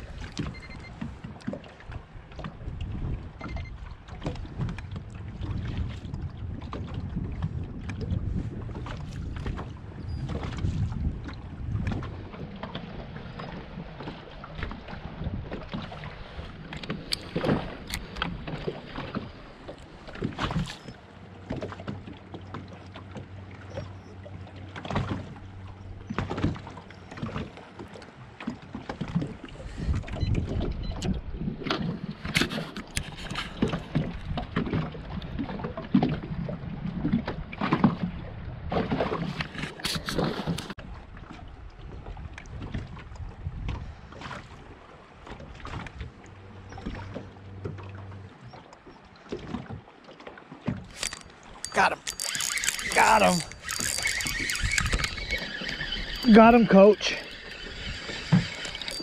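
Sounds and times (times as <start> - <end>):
wind rumble on microphone: 0.0 - 21.0, 28.2 - 47.6, 52.8 - 59.0
waves lapping against boat hull: 0.0 - 59.0.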